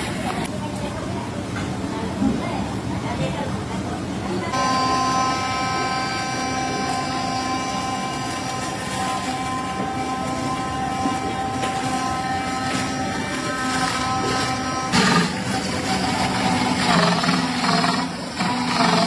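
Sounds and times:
pulping machine motor humming: 0:04.5 - 0:19.0.

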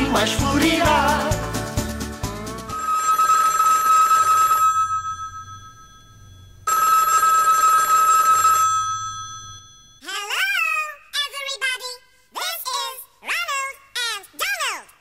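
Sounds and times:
telephone ringing: 0:02.8 - 0:10.1.

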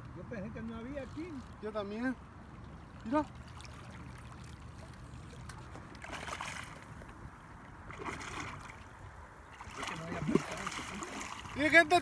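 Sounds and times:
fish splashing in water: 0:03.4 - 0:07.0, 0:07.8 - 0:11.6.

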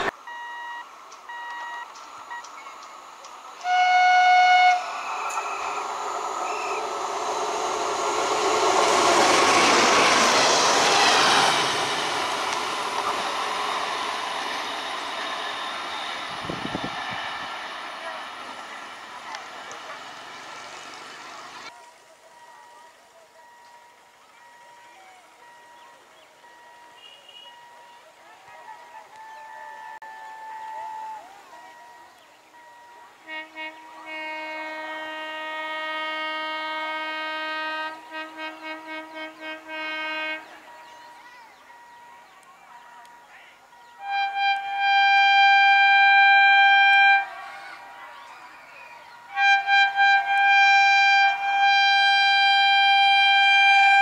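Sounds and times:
train wheels on rails: 0:01.0 - 0:21.7
locomotive air horn blasts: 0:03.6 - 0:17.6, 0:29.1 - 0:32.0, 0:32.6 - 0:41.1, 0:43.9 - 0:48.0, 0:49.2 - 0:54.0.

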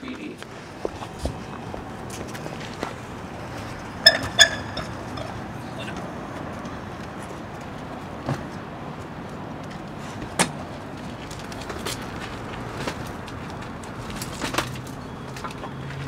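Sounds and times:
steady background rumble: 0:00.0 - 0:15.0
ladder knocking and clattering: 0:04.0 - 0:05.4.

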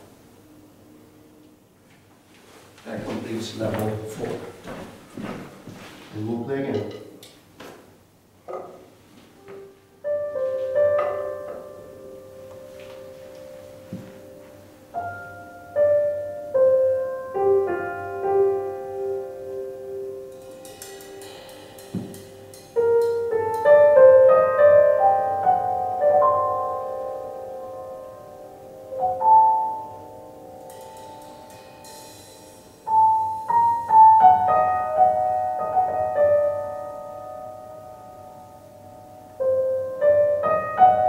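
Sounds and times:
piano music over loudspeakers: 0:09.4 - 0:41.0
high cymbal strokes: 0:19.9 - 0:24.3, 0:30.2 - 0:34.2
light percussion: 0:20.3 - 0:24.3, 0:30.6 - 0:34.5.

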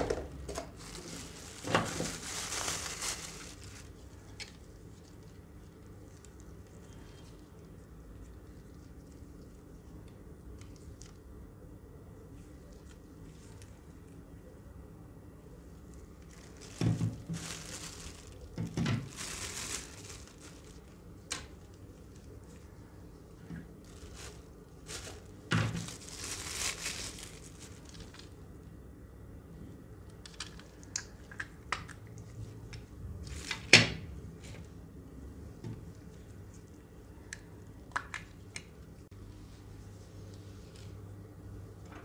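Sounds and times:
plastic bags and paper crinkling: 0:00.0 - 0:11.2, 0:12.3 - 0:14.2, 0:15.8 - 0:28.4, 0:33.2 - 0:33.7.

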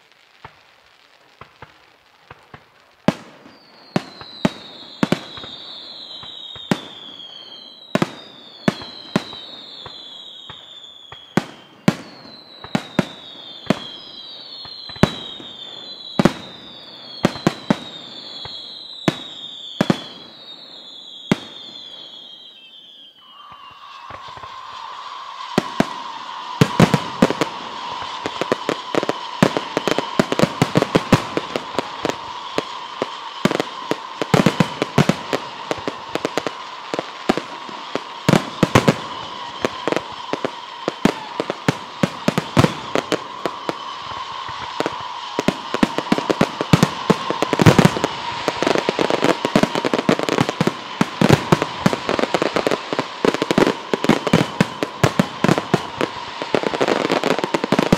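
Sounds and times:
fireworks bangs and crackles: 0:00.0 - 0:57.9.

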